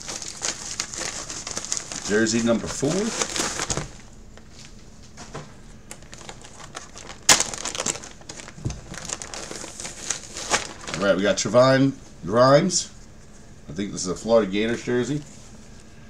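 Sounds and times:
plastic bag crinkling: 0:00.0 - 0:04.5, 0:05.9 - 0:11.5.

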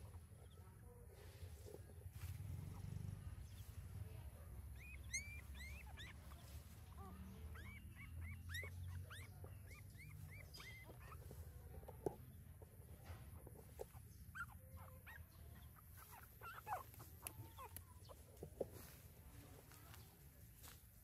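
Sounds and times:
low steady rumble: 0:00.0 - 0:20.8
puppies squeaking and whimpering: 0:04.6 - 0:18.8.

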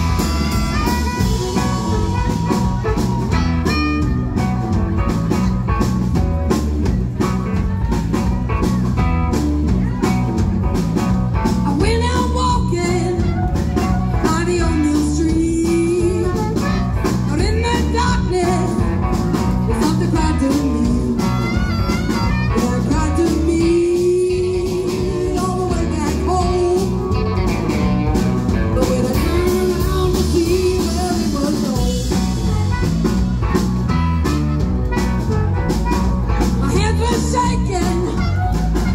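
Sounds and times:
amplified harmonica: 0:00.0 - 0:05.4, 0:21.0 - 0:23.4
blues band playing: 0:00.0 - 0:38.9
woman singing: 0:11.6 - 0:21.7, 0:22.5 - 0:27.4, 0:28.5 - 0:32.6, 0:36.6 - 0:38.8.

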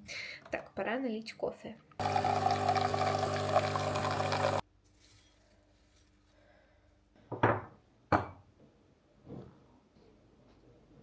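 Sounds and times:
coffee machine humming: 0:02.0 - 0:04.6.

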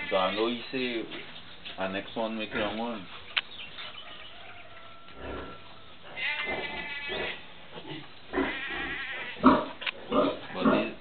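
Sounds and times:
farm animal bleating: 0:00.0 - 0:00.6, 0:04.2 - 0:11.0.

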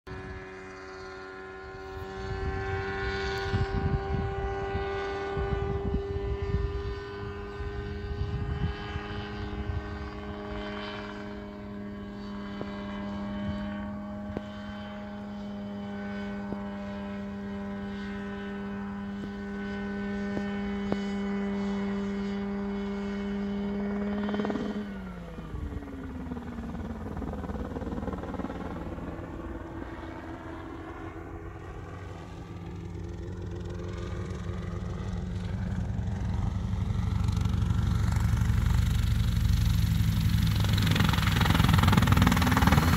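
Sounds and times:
helicopter engine running: 0:00.1 - 0:42.9
rotor whooshing: 0:34.8 - 0:42.9.

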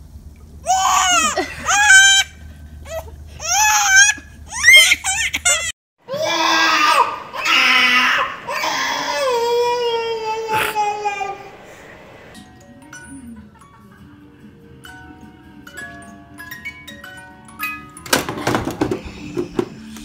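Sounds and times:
toddler crying: 0:00.6 - 0:12.1
baby squealing: 0:00.7 - 0:12.0.

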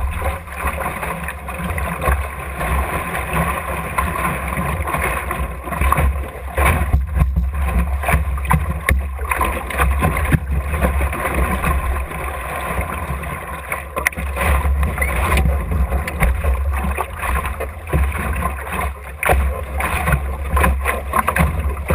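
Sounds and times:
water washing against hull: 0:00.0 - 0:21.9
wind rumble on microphone: 0:00.0 - 0:21.9
sharp knocks from hull: 0:05.9 - 0:10.6.

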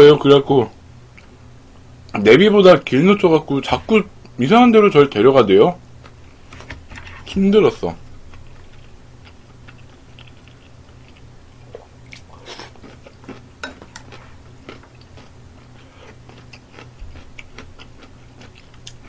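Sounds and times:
steady low hum: 0:00.0 - 0:19.0
crunchy chewing: 0:08.1 - 0:19.0.

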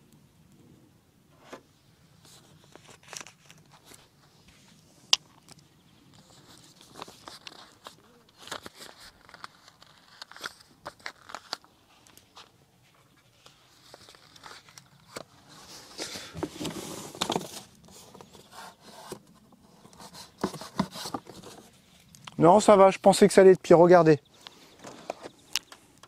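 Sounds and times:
paper rustling: 0:02.2 - 0:04.8, 0:06.2 - 0:22.1
small clicks and rubs: 0:02.2 - 0:22.4.

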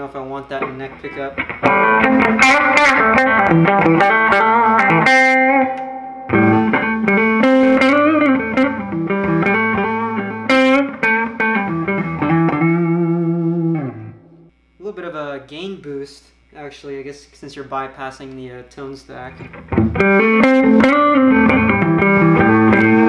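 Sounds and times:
electric guitar through an amp: 0:00.6 - 0:14.5, 0:19.3 - 0:23.0.

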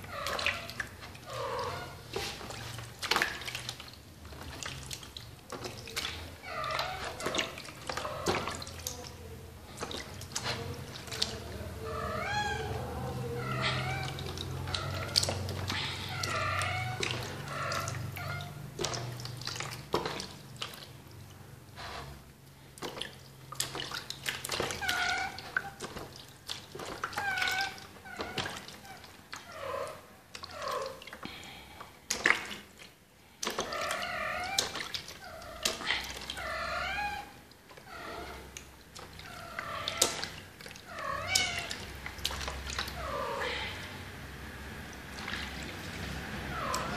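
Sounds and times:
water splashing and dripping: 0:00.0 - 0:46.9
kitten meowing: 0:11.8 - 0:18.5.

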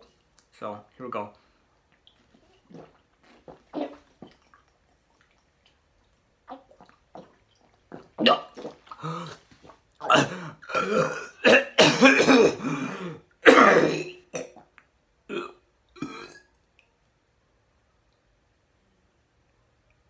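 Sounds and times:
man belching and gagging: 0:02.7 - 0:04.1, 0:06.5 - 0:16.5.

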